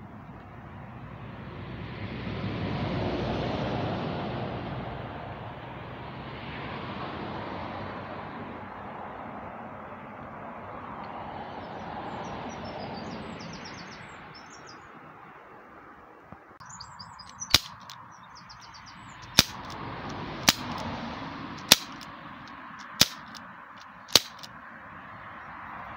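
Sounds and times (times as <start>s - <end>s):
air pistol shots popping: 17.3s - 18.0s, 19.2s - 19.8s, 20.4s - 20.9s, 21.6s - 22.1s, 22.8s - 24.5s.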